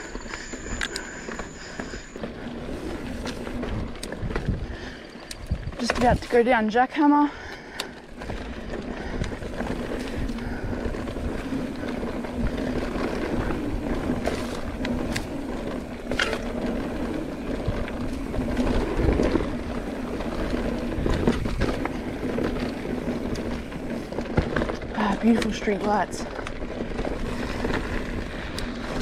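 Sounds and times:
tyre and wind noise: 0:00.0 - 0:29.0
bike knocks and rattles: 0:07.9 - 0:29.0.

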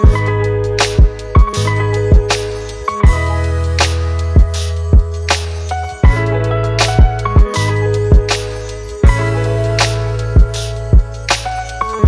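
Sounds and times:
kick drum: 0:00.0 - 0:00.3, 0:01.0 - 0:02.3, 0:03.0 - 0:03.3, 0:04.4 - 0:05.2, 0:06.0 - 0:06.3, 0:07.0 - 0:08.3, 0:09.0 - 0:09.3, 0:10.4 - 0:11.2
bass and chords: 0:00.0 - 0:12.0.

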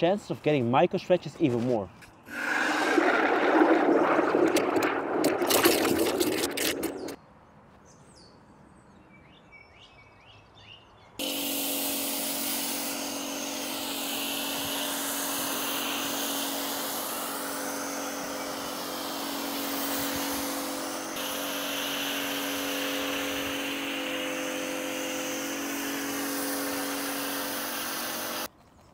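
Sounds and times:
pressure washer machine hum: 0:02.3 - 0:07.2, 0:11.2 - 0:28.5
pressure washer spray hissing: 0:11.2 - 0:28.5.

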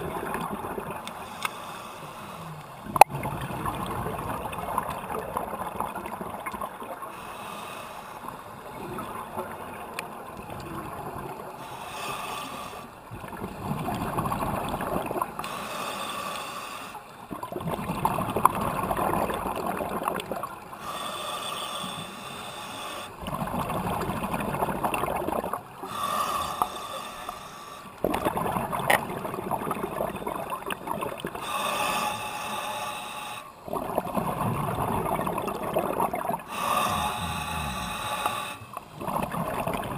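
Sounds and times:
exhaled bubbles gurgling: 0:00.0 - 0:01.2, 0:02.4 - 0:07.1, 0:13.1 - 0:15.4, 0:17.3 - 0:20.7, 0:23.2 - 0:26.8, 0:28.0 - 0:32.0, 0:33.6 - 0:39.9.

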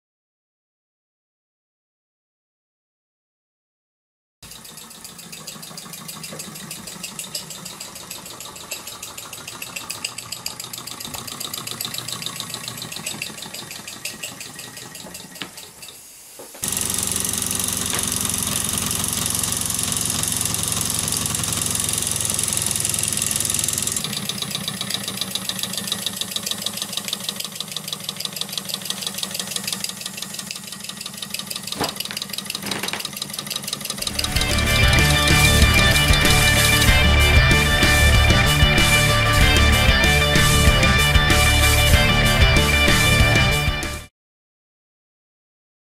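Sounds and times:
small steam engine chuffing: 0:04.4 - 0:43.3
steam hissing: 0:04.5 - 0:31.8.

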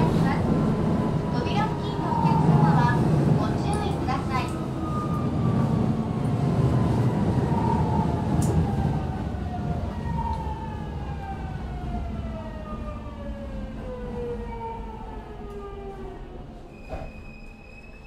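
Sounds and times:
train inverter whining: 0:00.0 - 0:18.0.

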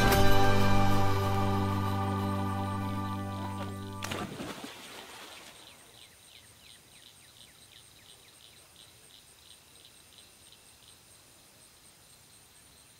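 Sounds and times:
background music: 0:00.0 - 0:04.2
insects trilling: 0:04.5 - 0:12.9.

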